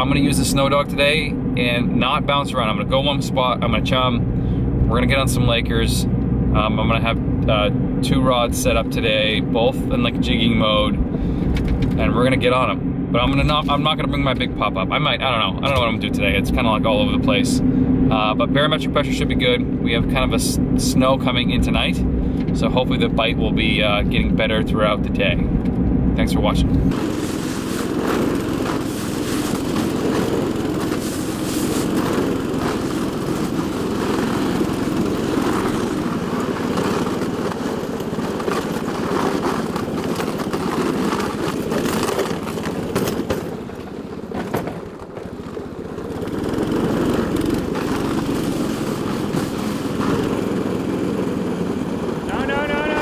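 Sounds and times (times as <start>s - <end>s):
snow machine engine running: 26.2s - 53.0s.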